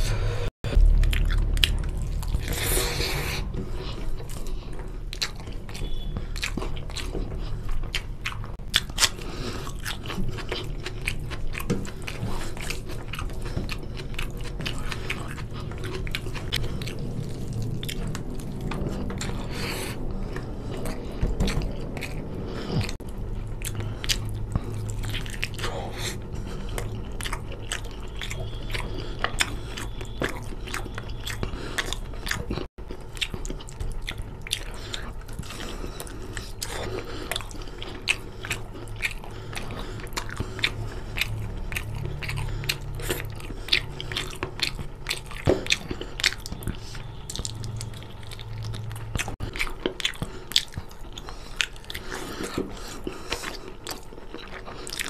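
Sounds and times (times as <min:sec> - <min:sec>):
man chewing and biting: 0:00.0 - 0:55.0
wet mouth clicks and smacks: 0:36.4 - 0:55.0.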